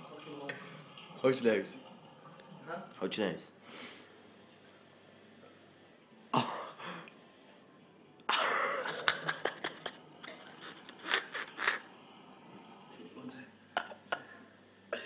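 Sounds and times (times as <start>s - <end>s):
person coughing and gagging: 6.4s - 6.8s, 13.8s - 15.0s.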